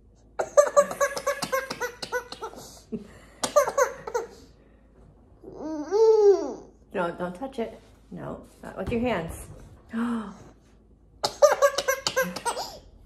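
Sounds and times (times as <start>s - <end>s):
baby laughing: 0.4s - 2.8s, 3.4s - 4.4s, 5.5s - 6.7s, 11.2s - 12.8s.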